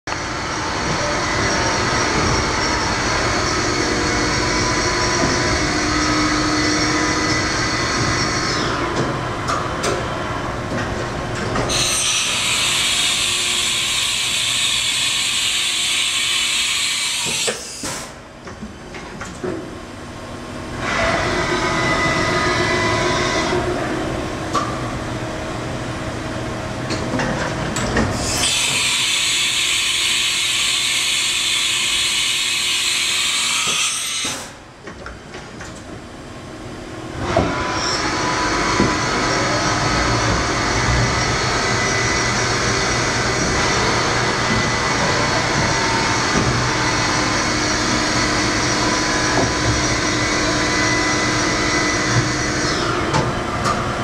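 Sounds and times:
machining center running: 0.1s - 11.8s, 34.6s - 54.0s.

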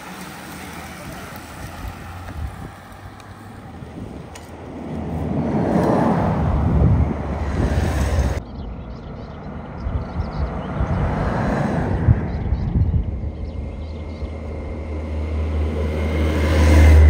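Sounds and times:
wind buffeting the microphone: 1.0s - 15.0s.

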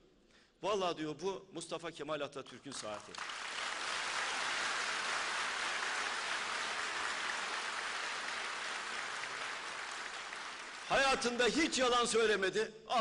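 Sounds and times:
audience applauding: 2.8s - 11.3s.

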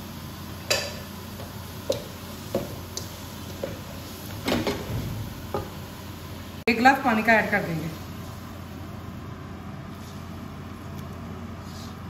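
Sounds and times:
light knocks and clicks in wok: 0.6s - 5.8s.

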